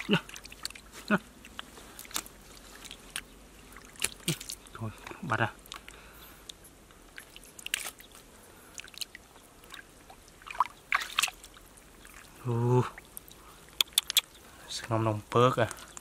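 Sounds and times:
hands splashing in muddy water: 0:00.0 - 0:04.8, 0:07.1 - 0:12.4
water dripping: 0:00.0 - 0:16.0.

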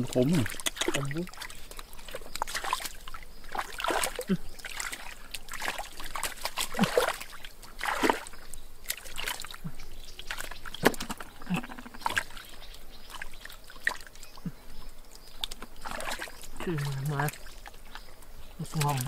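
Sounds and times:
wet splats and splashes: 0:00.0 - 0:14.5, 0:15.1 - 0:18.0, 0:18.6 - 0:19.0
hands sloshing through mud: 0:00.0 - 0:19.0.

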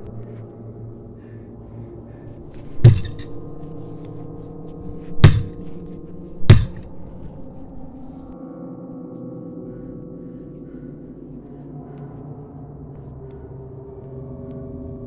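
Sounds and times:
low droning music: 0:00.0 - 0:15.0
fist pounding on wooden wall: 0:02.7 - 0:03.3, 0:05.0 - 0:05.8, 0:06.4 - 0:07.2.

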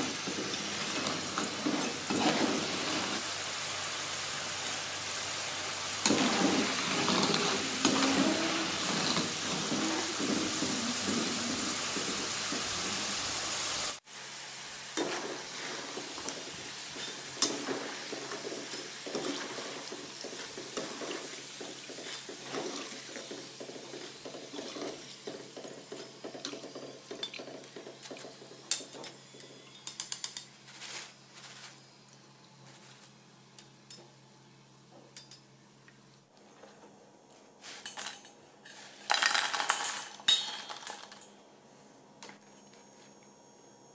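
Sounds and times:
fries sizzling in hot oil: 0:00.0 - 0:30.0.

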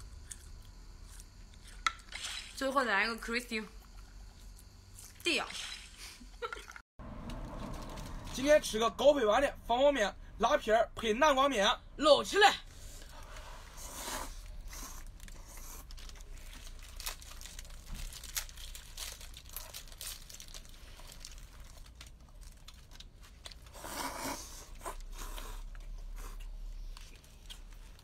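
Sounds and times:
noodle slurps: 0:23.6 - 0:26.6
chewing and smacking: 0:24.6 - 0:28.0.

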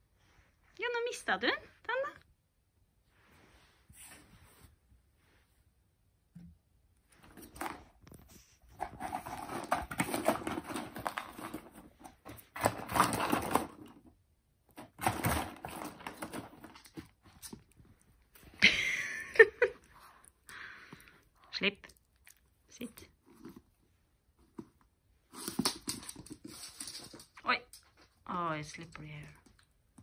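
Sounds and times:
dog rustling in cardboard box: 0:07.2 - 0:14.0.

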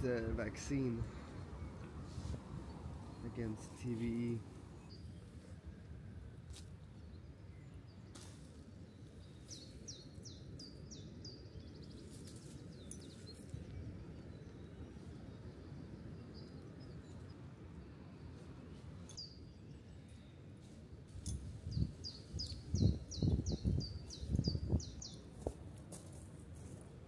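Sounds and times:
faint low outdoor background noise: 0:00.0 - 0:27.0
songbird singing high falling notes: 0:21.7 - 0:25.3.

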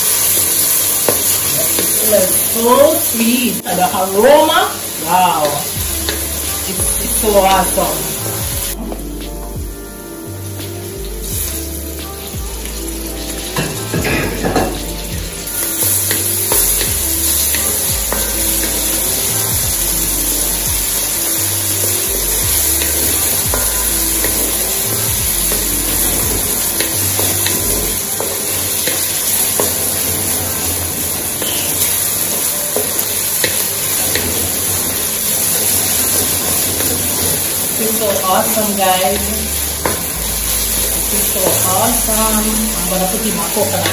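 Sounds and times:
vegetables sizzling in a pot: 0:00.0 - 0:43.9.

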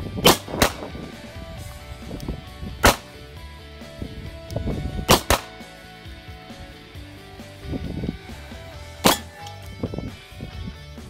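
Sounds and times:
background music: 0:00.0 - 0:11.0
pistol shots: 0:00.2 - 0:01.0, 0:02.8 - 0:03.2, 0:05.1 - 0:05.6, 0:09.0 - 0:09.4.

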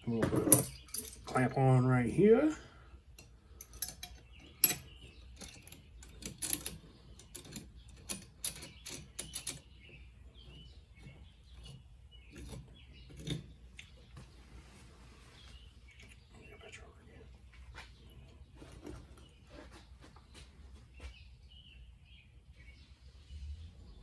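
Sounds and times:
small metallic clicks and clinks: 0:00.4 - 0:01.4, 0:03.1 - 0:09.7.

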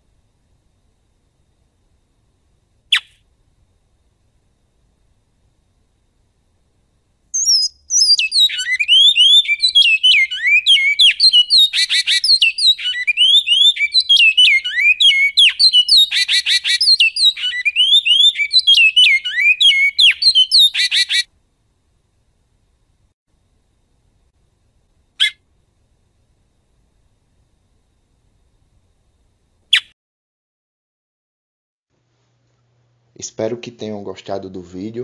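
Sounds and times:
finch singing whistled song: 0:02.9 - 0:03.2, 0:07.4 - 0:21.2, 0:29.7 - 0:29.9.

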